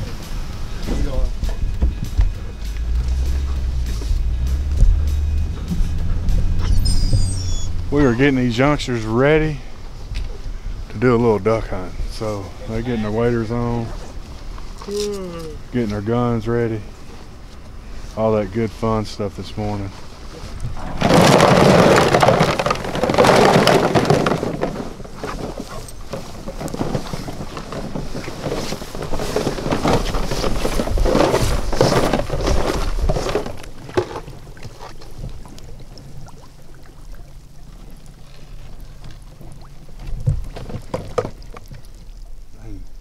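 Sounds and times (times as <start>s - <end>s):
steady low hum: 0.0s - 21.0s
plastic decoys rustling and knocking: 17.0s - 42.4s.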